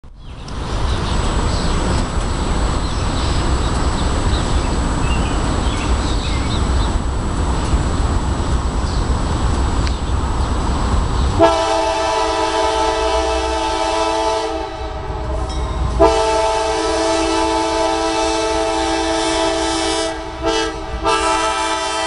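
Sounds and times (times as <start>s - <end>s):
low rumbling noise: 0.0s - 22.0s
birds chirping faintly: 0.2s - 7.1s.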